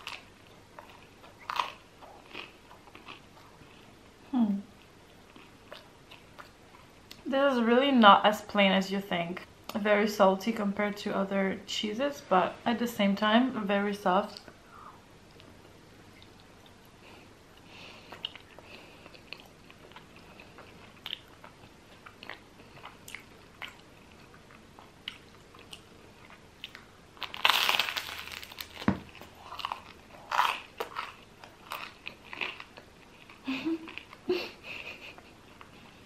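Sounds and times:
crunchy chewing: 0.0s - 3.6s, 18.1s - 34.2s
quiet chewing: 4.8s - 7.2s, 15.3s - 26.9s
crunchy bite into bread: 27.2s - 32.6s.

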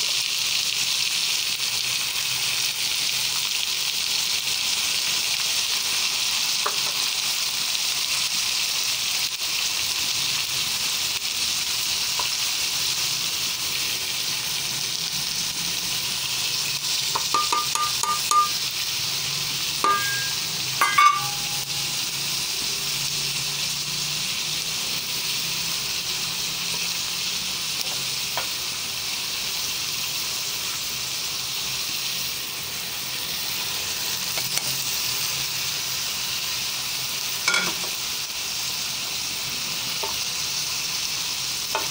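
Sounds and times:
vegetables sizzling in oil: 0.0s - 41.9s
metallic clinks: 19.8s - 21.8s.

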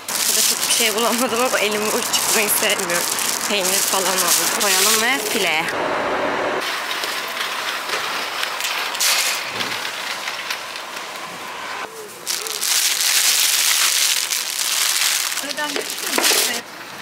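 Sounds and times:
plastic wrap crinkling: 0.0s - 5.7s, 12.2s - 16.6s
rustling of handled fruit: 0.0s - 5.7s, 12.0s - 16.6s.

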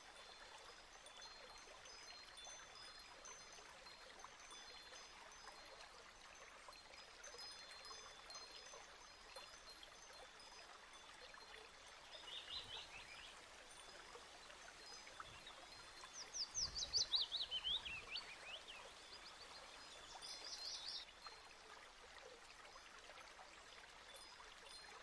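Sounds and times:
running water stream: 0.0s - 25.0s
bird trills and chirps: 15.2s - 21.0s.

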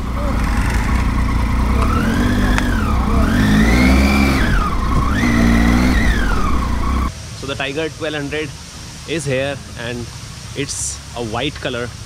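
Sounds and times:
motorcycle engine revving: 0.0s - 7.1s
steady low rumble: 0.0s - 10.1s.

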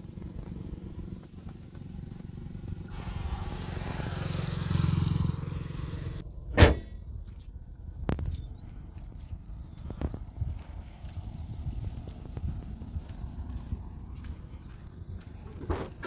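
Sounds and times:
small car engine idling: 0.0s - 6.2s
car bonnet slamming shut: 6.5s - 7.0s.

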